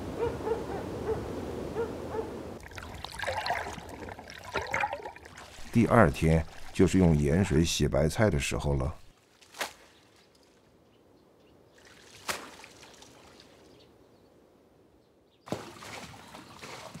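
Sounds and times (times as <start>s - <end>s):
water splashing and dripping: 2.6s - 8.2s, 11.8s - 13.8s, 15.5s - 17.0s.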